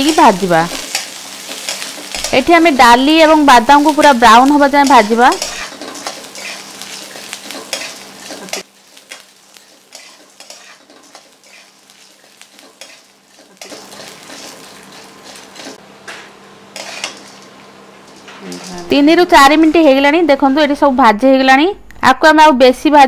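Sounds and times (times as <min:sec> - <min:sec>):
light sizzle: 0:00.0 - 0:21.6
spatula scraping metal pan: 0:09.7 - 0:11.8, 0:16.8 - 0:17.2.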